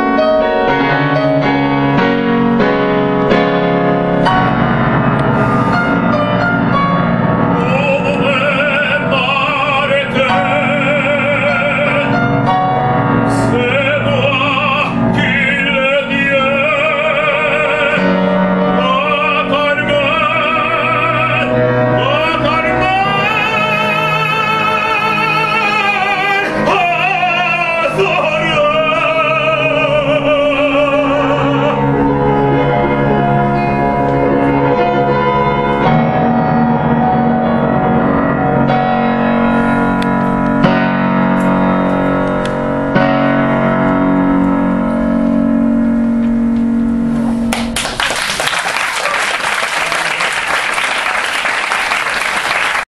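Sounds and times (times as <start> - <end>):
piano accompaniment: 0.0 - 52.9
operatic tenor singing: 7.5 - 35.9
audience applause: 47.5 - 52.9.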